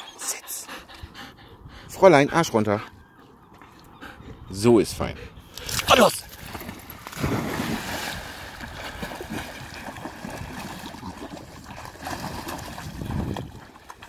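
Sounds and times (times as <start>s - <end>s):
water splashing and sloshing: 5.5s - 14.0s
dog splashing into water: 6.3s - 14.0s.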